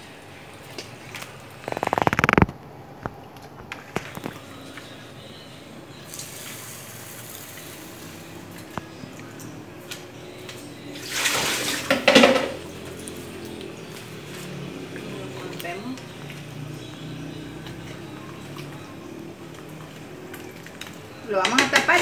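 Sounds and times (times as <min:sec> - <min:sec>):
liquid splashing in a pot: 0:11.0 - 0:22.0.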